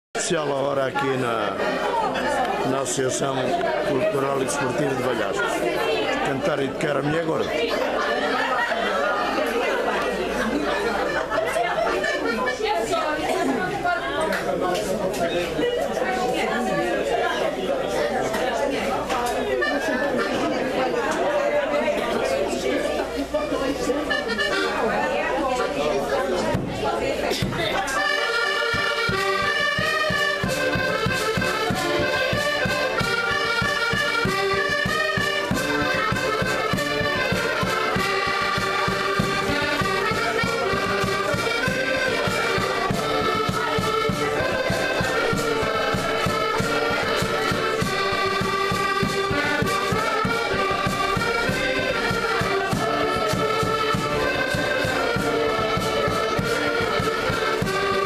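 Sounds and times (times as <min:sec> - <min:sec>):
accordions playing folk tune: 0:00.2 - 0:58.0
bass drum beat: 0:34.0 - 0:58.0.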